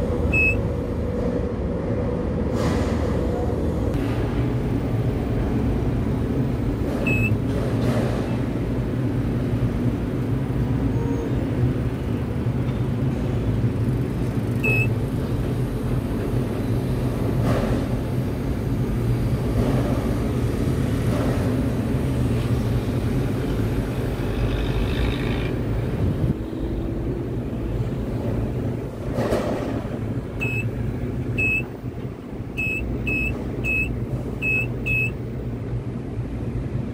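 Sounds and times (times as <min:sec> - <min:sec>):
crane machinery hum and rumble: 0:00.0 - 0:36.9
short high beeps: 0:07.1 - 0:07.4, 0:14.6 - 0:14.9, 0:30.4 - 0:30.7, 0:31.4 - 0:31.7, 0:32.6 - 0:35.2.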